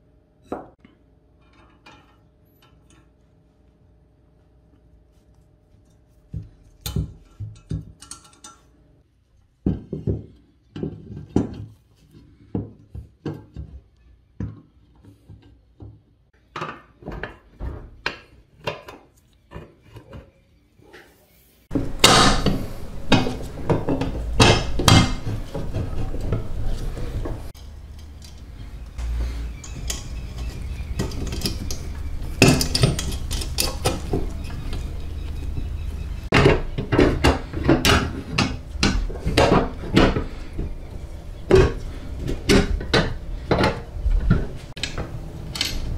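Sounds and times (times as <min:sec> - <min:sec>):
metal parts clicking and clinking: 0:01.4 - 0:03.2, 0:06.6 - 0:08.8, 0:27.6 - 0:35.6, 0:44.8 - 0:45.9
steady background noise: 0:14.2 - 0:45.9.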